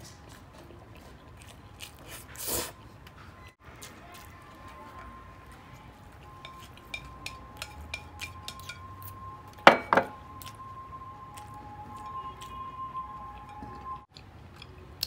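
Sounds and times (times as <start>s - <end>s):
chopsticks tapping on ceramic plate: 6.3s - 8.8s, 9.7s - 10.2s
plate knocking down on surface: 9.7s - 10.1s.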